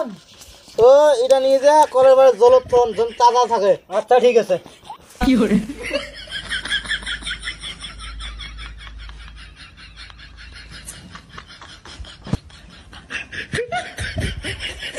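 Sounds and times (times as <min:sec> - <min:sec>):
person snickering laughter: 0:04.6 - 0:14.9.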